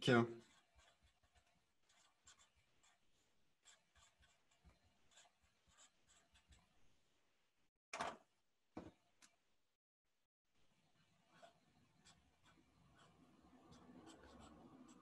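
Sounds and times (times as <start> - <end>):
marker scratching on paper: 0.4 - 6.8, 11.3 - 15.0.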